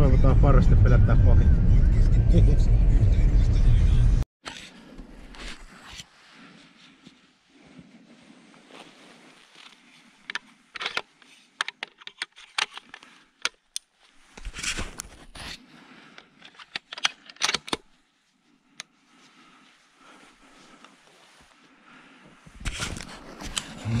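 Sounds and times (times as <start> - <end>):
scraping rattle of rifle action: 9.6 - 13.7, 14.3 - 17.9
rifle loading clicks: 16.4 - 17.9.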